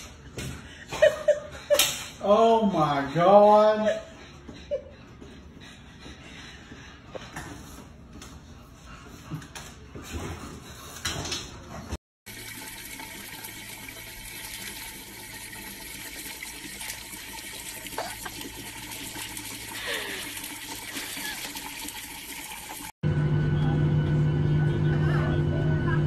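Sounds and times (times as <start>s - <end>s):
water running from a tap: 12.3s - 23.0s.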